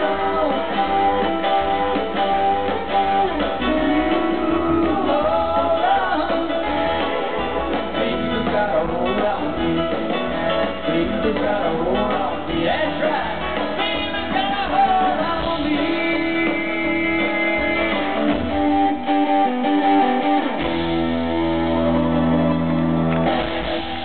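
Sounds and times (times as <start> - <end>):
man singing: 0.0 - 1.4, 3.5 - 20.4
drums: 0.0 - 24.0
electric guitar: 0.0 - 24.0.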